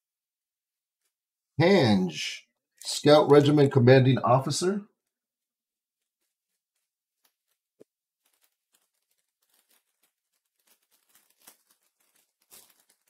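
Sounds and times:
trading cards rustling: 6.0 - 13.0.

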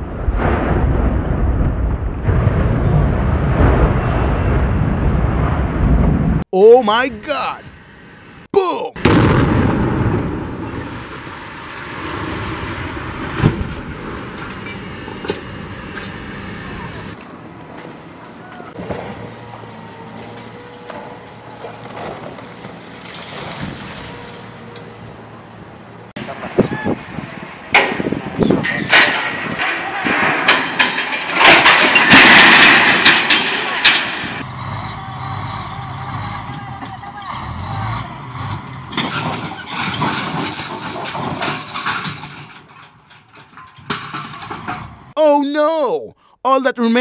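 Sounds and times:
diesel engines under load: 6.6 - 46.8
excavator engine and hydraulics: 13.8 - 28.8
concrete wall crashing down: 27.8 - 34.4, 38.9 - 44.8
concrete chunks clattering: 28.5 - 34.4, 39.0 - 44.7.

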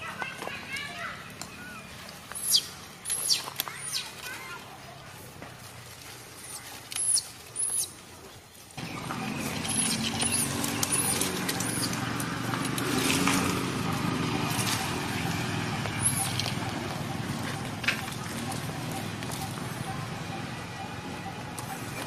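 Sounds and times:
baby monkey squeaking cries: 9.2 - 12.0, 16.0 - 19.9.

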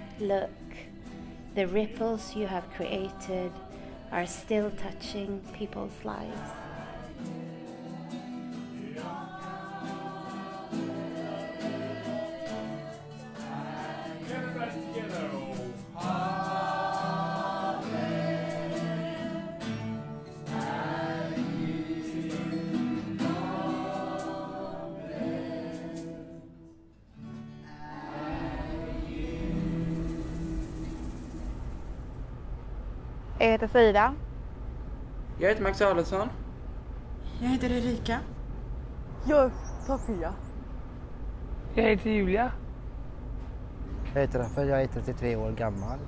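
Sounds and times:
choir singing held chords: 0.0 - 26.8, 27.6 - 32.3.

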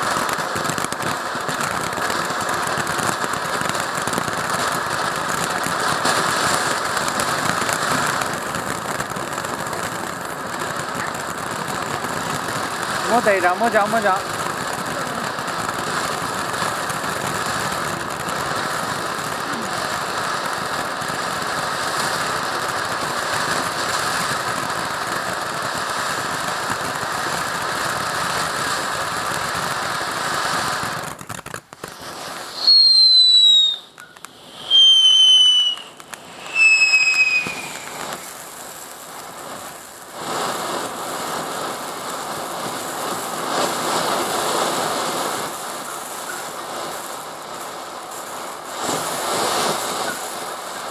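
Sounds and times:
firework whistles: 0.0 - 10.1, 10.7 - 14.3, 29.7 - 47.6, 48.2 - 50.9
firework fountain hissing: 0.0 - 50.9.

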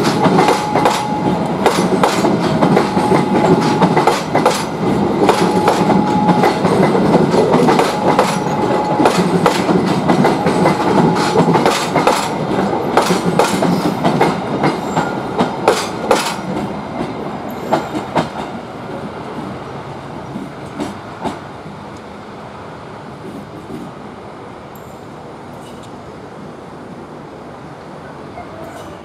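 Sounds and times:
train wheels clicking over rail joints: 0.0 - 22.1.

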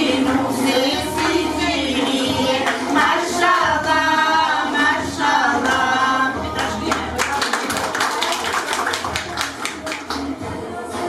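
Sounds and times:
rhythmic hand clapping: 0.0 - 10.5
group singing: 0.0 - 11.0.

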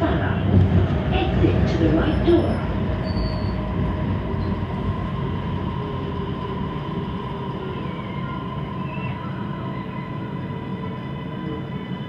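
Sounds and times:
train running gear rumble: 0.0 - 9.2
high-pitched train whine: 1.4 - 12.0.

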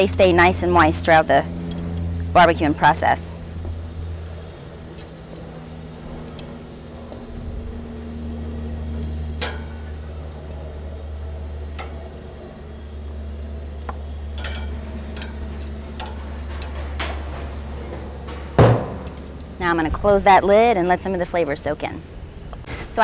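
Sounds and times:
steady low hum: 0.0 - 23.0
squash sizzling on a grill: 2.0 - 17.4
clicks and taps on grill grate: 3.6 - 7.3, 8.5 - 12.5, 13.7 - 19.5.

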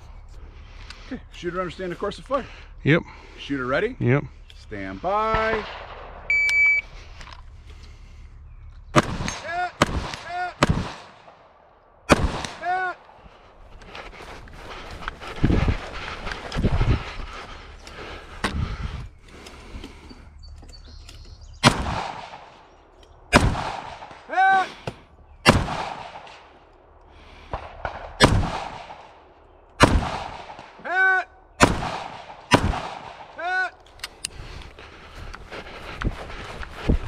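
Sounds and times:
rifle shots: 5.3 - 6.3, 8.9 - 12.6, 21.6 - 22.6, 23.3 - 24.3, 25.4 - 26.5, 27.5 - 30.8, 31.6 - 33.4.

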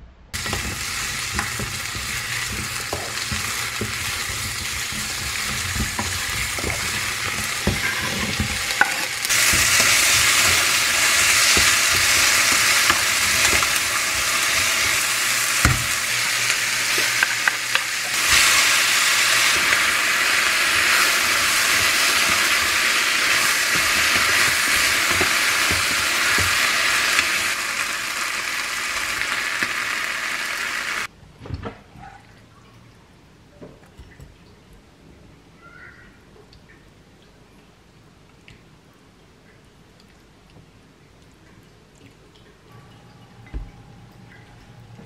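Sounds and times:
food sizzling in a frying pan: 0.4 - 31.1.

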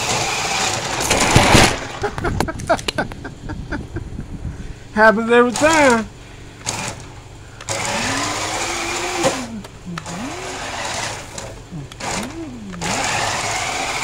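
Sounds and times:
toy car electric motor whine: 0.0 - 1.1, 6.6 - 7.0, 7.6 - 14.0
steady rasping hiss: 4.4 - 14.0.

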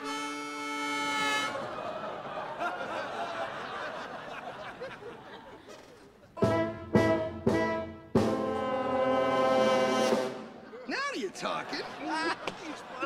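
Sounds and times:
brass instruments playing chords: 0.0 - 1.7, 6.4 - 10.7.

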